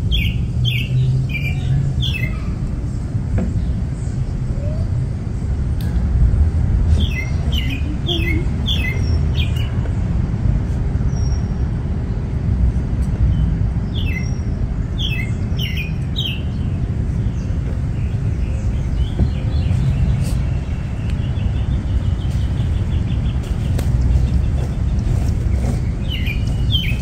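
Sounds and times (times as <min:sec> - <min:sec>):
steady low rumble: 0:00.0 - 0:27.0
songbird chirping: 0:06.9 - 0:09.8, 0:13.2 - 0:27.0.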